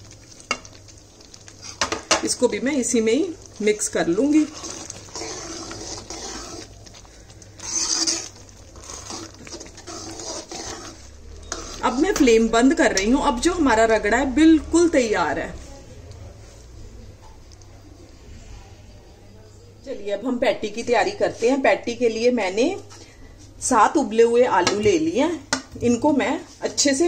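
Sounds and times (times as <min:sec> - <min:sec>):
metal ladle stirring in pan: 0:00.0 - 0:14.4.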